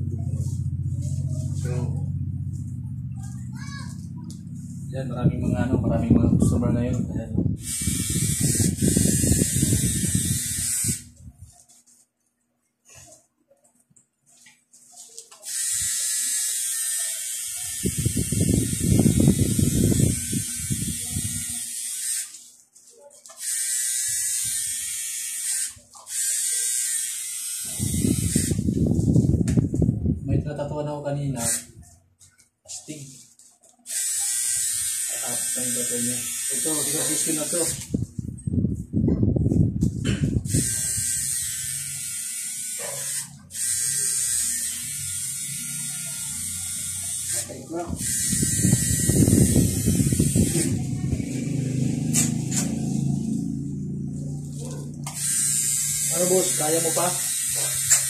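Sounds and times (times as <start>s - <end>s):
low irregular rumble: 0.0s - 7.6s
tattoo machine buzzing: 7.6s - 11.2s, 15.4s - 22.4s, 23.3s - 29.6s, 31.3s - 31.8s, 33.9s - 38.0s, 40.3s - 58.0s.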